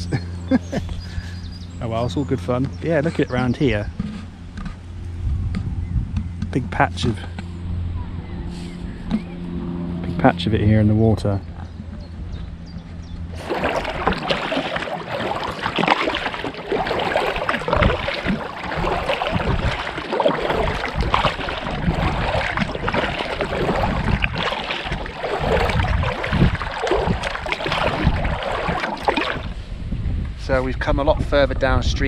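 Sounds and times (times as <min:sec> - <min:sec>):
wind buffeting microphone: 0:00.8 - 0:32.0
water slapping kayak hull: 0:11.2 - 0:29.8
paddle strokes splashing: 0:13.3 - 0:29.7.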